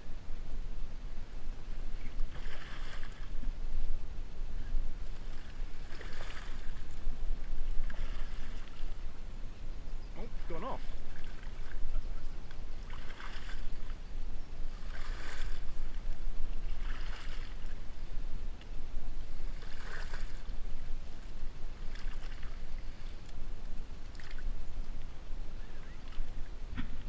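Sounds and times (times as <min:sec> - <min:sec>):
paddle swishing through reeds: 0:02.0 - 0:03.4, 0:05.0 - 0:07.0, 0:07.7 - 0:09.0, 0:10.4 - 0:13.9, 0:14.7 - 0:17.8, 0:19.4 - 0:20.8, 0:21.8 - 0:23.3.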